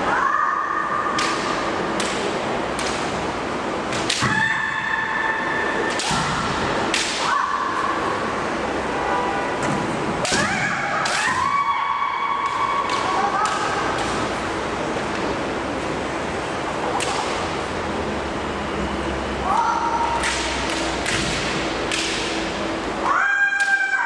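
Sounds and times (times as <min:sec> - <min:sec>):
bamboo swords clacking: 0:01.1 - 0:03.2, 0:03.9 - 0:04.4, 0:05.9 - 0:07.4, 0:16.8 - 0:17.4, 0:20.2 - 0:22.4.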